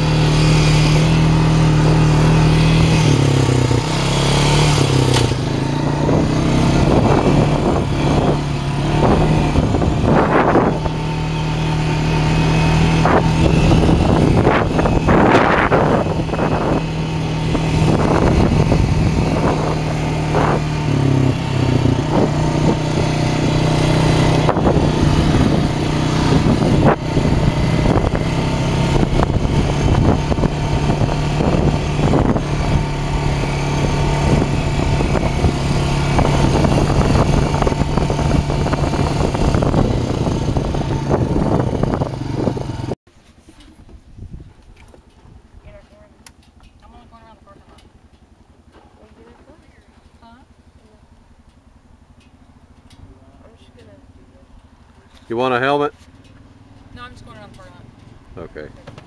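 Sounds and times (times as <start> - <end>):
atv engine running: 0.0 - 59.0
wind buffeting microphone: 1.0 - 43.0, 43.8 - 46.1
knocks from bumpy dirt road: 3.8 - 11.0, 54.6 - 59.0.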